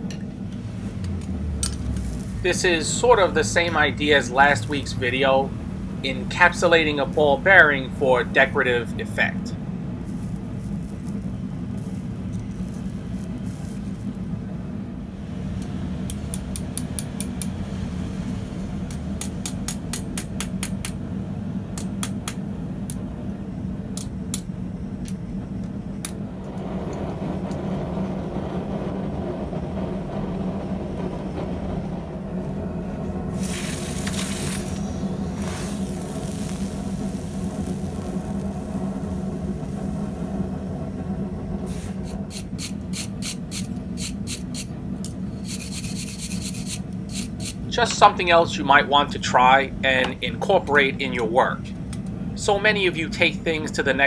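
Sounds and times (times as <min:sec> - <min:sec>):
steady hum: 0:00.0 - 0:54.0
hot metal hissing in water: 0:01.6 - 0:08.8, 0:10.0 - 0:14.4, 0:33.3 - 0:44.7, 0:45.3 - 0:47.8
hammer tapping hot steel on anvil: 0:16.0 - 0:17.6, 0:18.9 - 0:21.0, 0:21.8 - 0:23.0.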